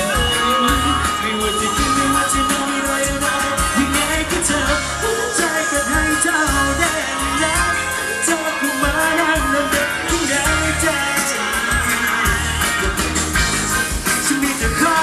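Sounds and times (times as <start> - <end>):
live band with drum beat: 0.0 - 15.0
man singing into microphone: 0.0 - 15.0.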